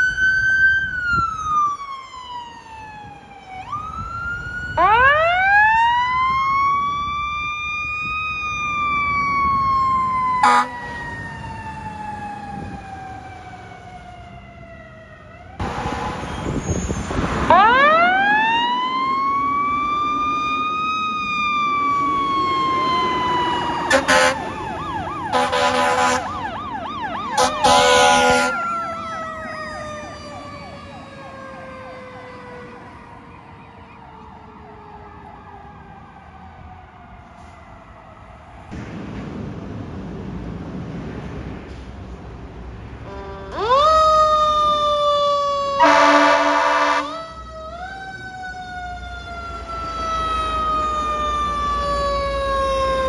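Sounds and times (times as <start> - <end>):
warbling siren yelp: 0.0 - 15.6, 17.4 - 38.4, 43.1 - 53.0
fire truck siren wailing: 0.0 - 40.9, 42.9 - 53.0
horn blasts: 10.4 - 10.9, 23.9 - 24.5, 25.3 - 26.4, 27.4 - 28.6, 43.0 - 43.6, 45.8 - 47.2.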